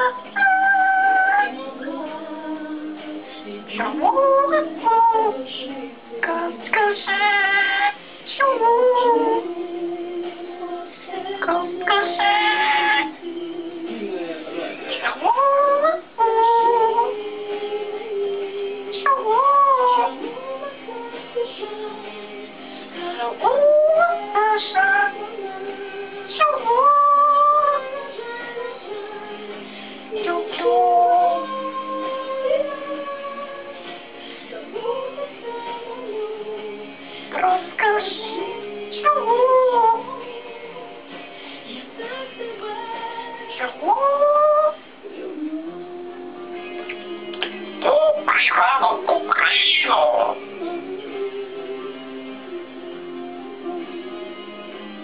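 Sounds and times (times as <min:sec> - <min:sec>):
parrot singing: 0:00.0 - 0:01.6, 0:11.4 - 0:13.1, 0:19.0 - 0:20.3, 0:23.4 - 0:25.4, 0:26.3 - 0:28.0, 0:37.3 - 0:38.3, 0:38.9 - 0:40.1, 0:43.6 - 0:44.8, 0:47.8 - 0:50.5.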